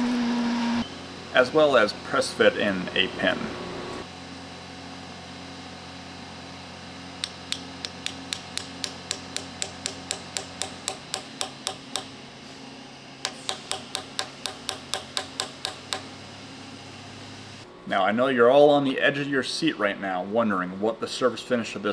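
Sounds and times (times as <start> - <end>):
hammer tapping metal pin: 7.2 - 12.1, 13.3 - 16.1.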